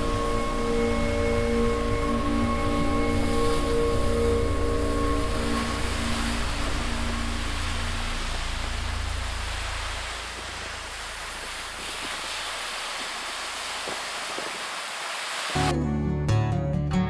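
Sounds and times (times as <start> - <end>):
waves breaking on a beach: 0.0 - 15.7
acoustic guitar music: 15.6 - 17.0.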